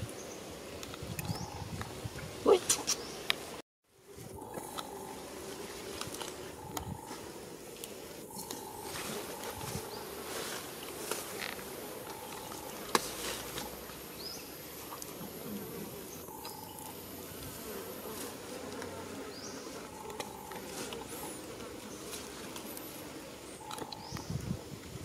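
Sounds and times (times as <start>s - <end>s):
insects buzzing: 0.0s - 25.0s
small high chirps: 4.4s - 14.6s, 16.2s - 17.6s.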